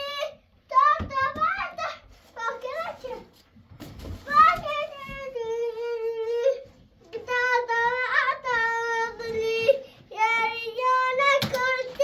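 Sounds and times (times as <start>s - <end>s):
child singing: 4.3s - 12.0s.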